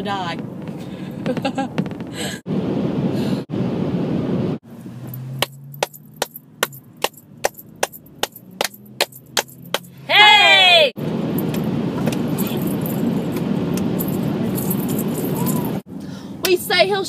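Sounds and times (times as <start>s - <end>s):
car road noise: 0.0s - 17.0s
rhythmic hand clapping: 5.4s - 9.9s.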